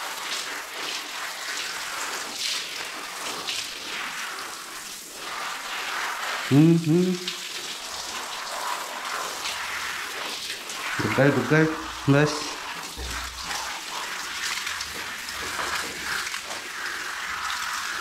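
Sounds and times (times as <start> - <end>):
water streaming and splashing: 0.0 - 18.0
short voice sound: 6.5 - 7.4, 11.0 - 12.6.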